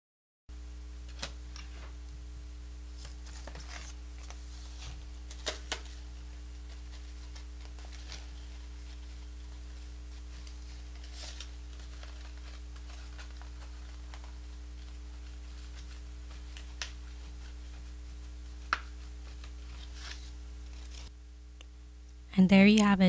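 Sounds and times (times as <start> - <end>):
steady low hum: 0.5 - 23.0
paper rustling and ticking: 3.0 - 21.1.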